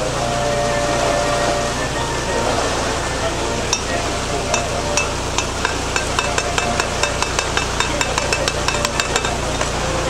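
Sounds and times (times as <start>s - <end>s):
water rushing through gate: 0.0s - 10.0s
ratchet clicking: 5.4s - 9.4s.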